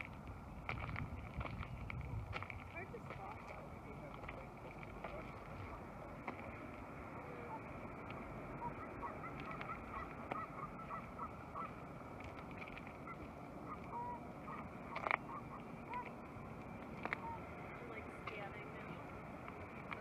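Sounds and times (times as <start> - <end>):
steady background noise: 0.0 - 20.0
geese honking: 7.2 - 16.3, 17.0 - 18.2.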